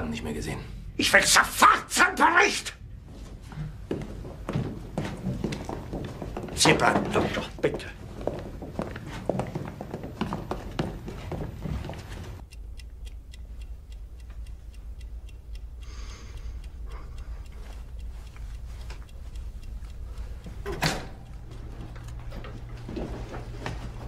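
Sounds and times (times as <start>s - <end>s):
wall clock ticking: 1.0s - 2.8s, 3.8s - 8.9s, 9.8s - 24.0s
low hum: 10.4s - 24.0s.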